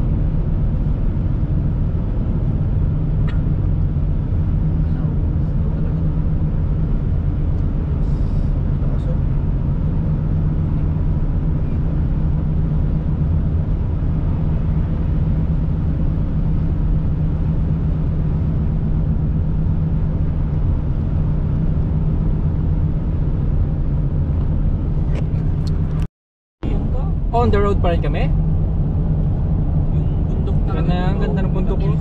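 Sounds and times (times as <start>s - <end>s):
car engine and tyres on wet road: 0.0s - 32.0s.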